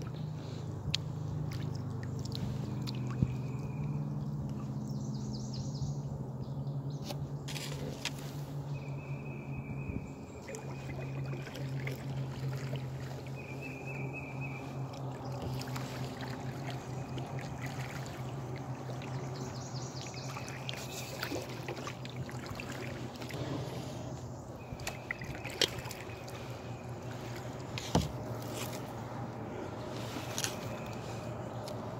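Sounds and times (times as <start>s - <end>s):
steady low hum: 0.0s - 31.9s
water lapping at hull: 0.0s - 31.9s
water dripping off paddle: 14.8s - 23.4s, 24.6s - 28.3s.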